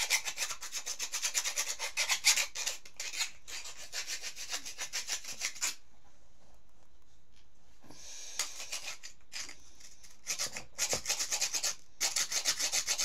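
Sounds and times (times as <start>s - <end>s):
file rasping on bone: 0.0s - 5.8s, 8.4s - 13.0s.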